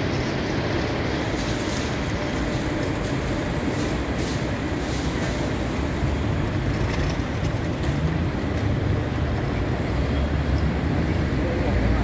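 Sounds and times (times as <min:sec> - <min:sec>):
city street traffic: 0:00.0 - 0:12.0.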